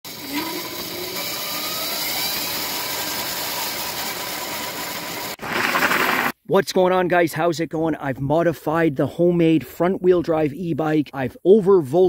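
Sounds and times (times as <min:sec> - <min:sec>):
chain and sprocket whir: 0:00.1 - 0:06.3
electric motor whine: 0:00.1 - 0:06.3.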